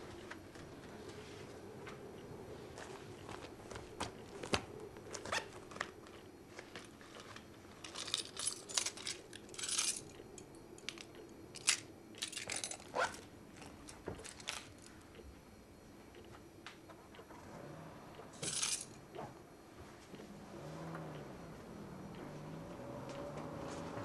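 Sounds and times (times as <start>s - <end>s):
metal keys jingling: 7.8s - 10.2s, 10.8s - 14.9s, 18.4s - 19.0s.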